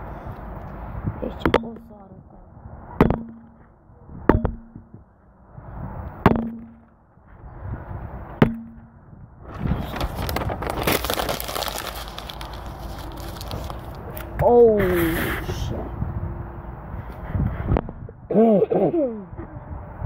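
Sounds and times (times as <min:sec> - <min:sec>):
sharp knocks with low ring: 0:03.0 - 0:05.0, 0:06.2 - 0:07.0, 0:08.4 - 0:09.0
wrapping crackling rustle: 0:09.6 - 0:14.3.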